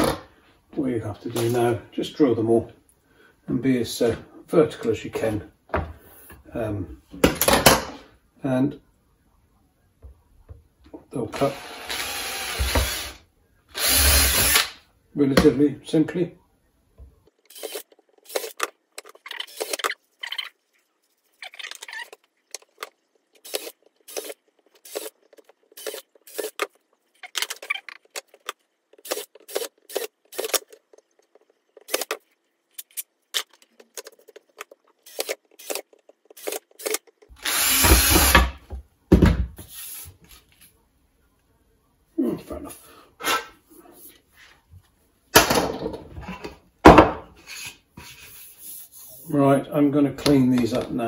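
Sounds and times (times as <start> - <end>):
cordless drill boring plastic pipe: 11.4 - 14.8, 35.1 - 38.5.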